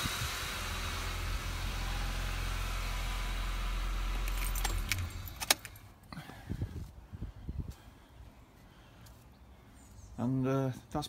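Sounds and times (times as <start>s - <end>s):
car engine idling: 0.0s - 6.0s
keys jingling: 4.2s - 5.8s.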